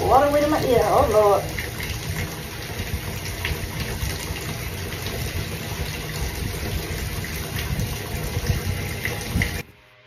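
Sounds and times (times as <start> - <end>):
shower water running: 0.0 - 9.8.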